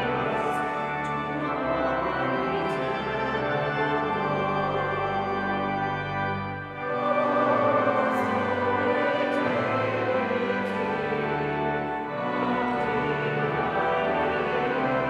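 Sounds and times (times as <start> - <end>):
church organ chords: 0.0 - 15.0.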